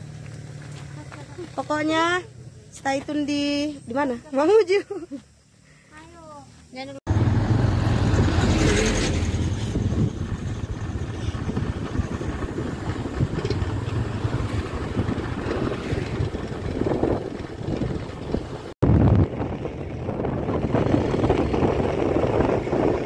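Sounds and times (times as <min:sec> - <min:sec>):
road noise: 0:00.0 - 0:04.6, 0:05.2 - 0:23.0
truck passing: 0:07.1 - 0:23.0
wind buffeting microphone: 0:07.1 - 0:23.0.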